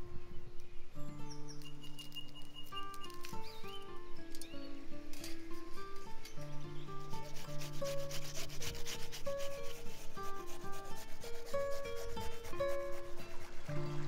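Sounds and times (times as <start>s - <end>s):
background music: 3.0s - 14.0s
onion rasping on metal grater: 7.1s - 13.5s.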